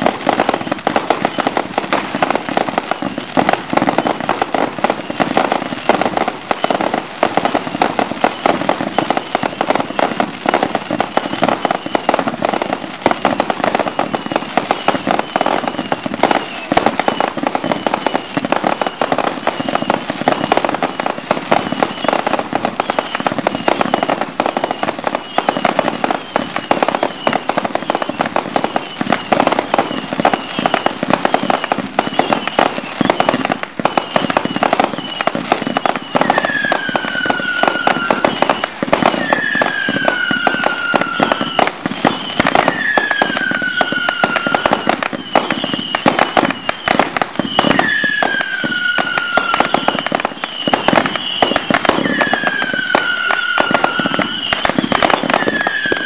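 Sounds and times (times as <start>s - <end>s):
fireworks bangs and crackling: 0.0s - 56.0s
short falling whistles: 13.9s - 20.5s, 22.8s - 56.0s
long low falling whistle: 31.5s - 56.0s.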